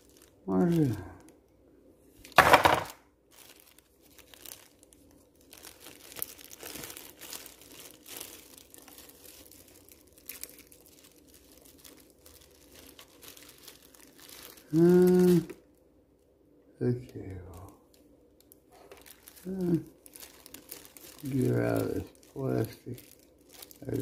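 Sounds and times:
packaging crinkling: 0.0s - 1.4s, 2.2s - 15.8s, 17.1s - 24.0s
packaging rustling and clicking: 2.2s - 14.7s, 17.9s - 19.4s.

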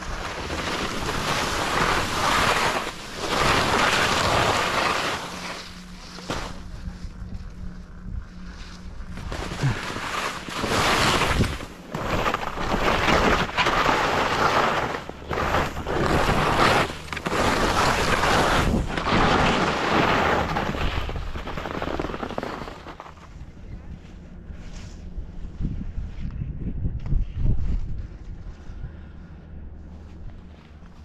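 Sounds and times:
skis scraping over snow: 0.0s - 25.0s
wind on microphone: 25.2s - 29.0s.

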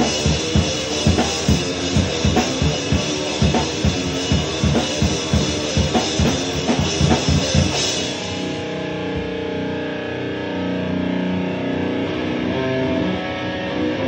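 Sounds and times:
drum kit with cymbals: 0.0s - 9.6s
sustained guitar chords: 0.0s - 14.0s.

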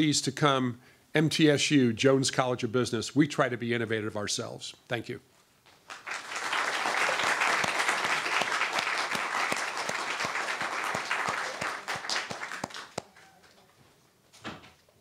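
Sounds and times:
audience applauding: 5.9s - 13.6s
single claps close by: 9.0s - 13.1s.

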